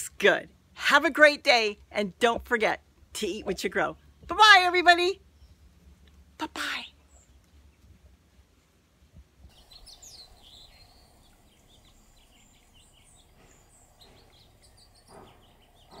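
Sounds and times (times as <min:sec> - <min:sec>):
faint background hiss: 0:00.0 - 0:16.0
hummingbirds chirping: 0:09.5 - 0:16.0.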